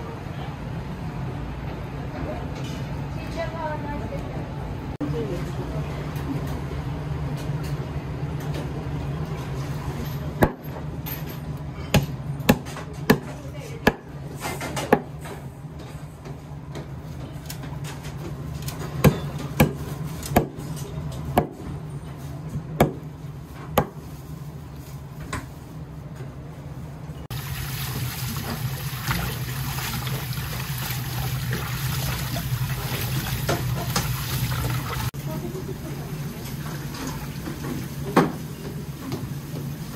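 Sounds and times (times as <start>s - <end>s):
tap water spraying into sink: 27.3s - 35.1s.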